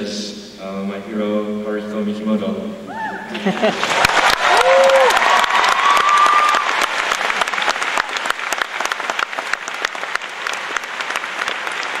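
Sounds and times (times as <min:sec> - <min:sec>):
audience applauding: 0:03.6 - 0:12.0.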